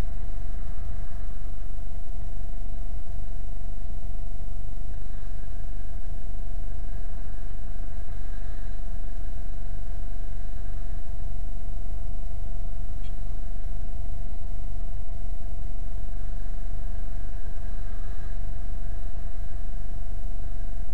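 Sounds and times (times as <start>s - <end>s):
thin whine: 0.0s - 20.9s.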